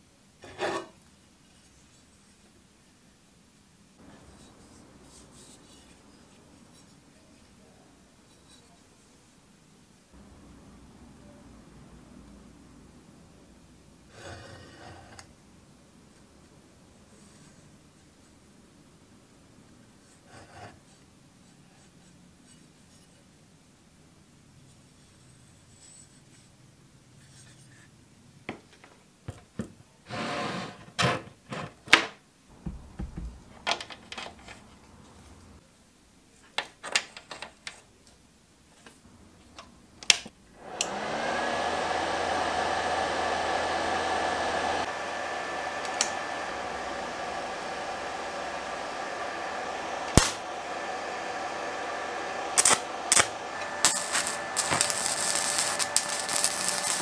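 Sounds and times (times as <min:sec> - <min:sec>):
welder cooling fan whine: 0:40.1 - 0:57.0
welding arc crackle: 0:50.1 - 0:50.4, 0:52.6 - 0:57.0.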